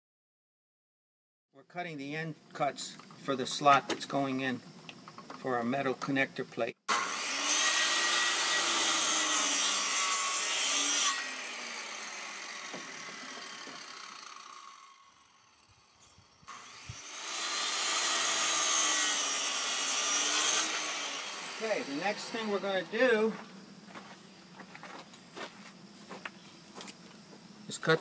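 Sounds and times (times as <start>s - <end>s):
circular saw cutting wood: 6.9s - 23.4s.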